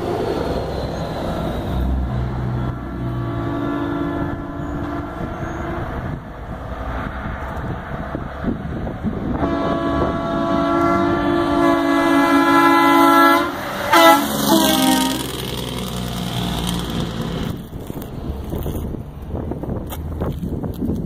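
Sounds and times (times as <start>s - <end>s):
truck engine rumble: 0.0s - 21.0s
truck horn chord: 2.9s - 5.9s, 9.4s - 15.5s.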